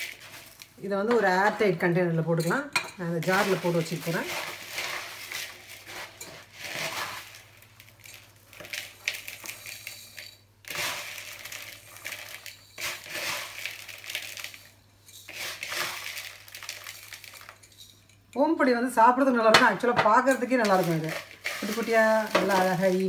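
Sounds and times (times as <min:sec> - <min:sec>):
crisp snack rustling and crackling: 0:00.0 - 0:01.0, 0:03.2 - 0:17.8, 0:20.5 - 0:23.0.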